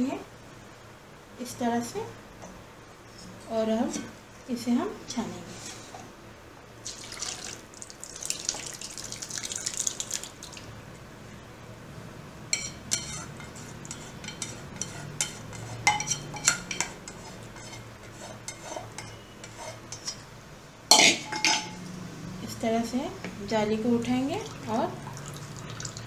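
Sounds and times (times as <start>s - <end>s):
liquid pouring and splashing: 6.8s - 10.7s, 24.4s - 26.0s
spoon scraping metal pot: 12.6s - 20.3s.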